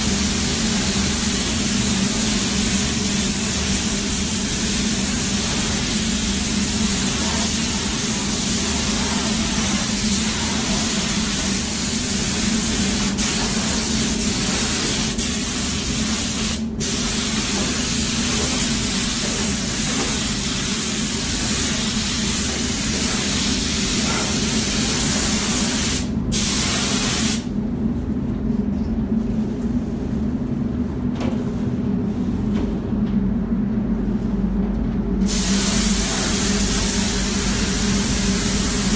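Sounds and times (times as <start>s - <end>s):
steady low hum: 0.0s - 38.9s
paint spray gun hissing: 0.3s - 27.5s, 35.3s - 38.9s.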